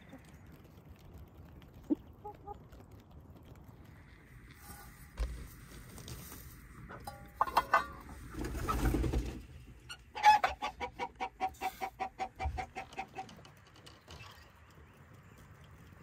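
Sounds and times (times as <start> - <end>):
hen clucking: 1.8 - 2.8, 6.8 - 13.6
low rustle: 2.6 - 10.1.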